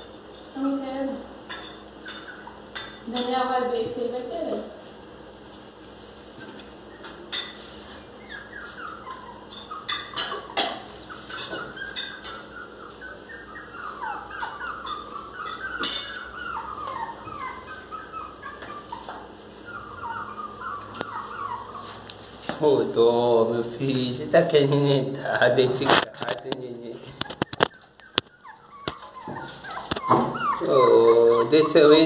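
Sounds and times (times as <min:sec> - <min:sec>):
dog whimpering: 0:02.0 - 0:02.8, 0:06.8 - 0:22.2, 0:27.1 - 0:32.0.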